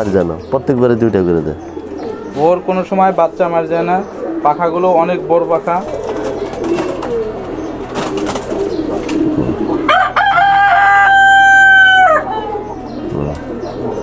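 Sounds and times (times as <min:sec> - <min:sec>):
pigeons cooing: 0:00.0 - 0:14.0
rooster crowing: 0:09.8 - 0:12.6.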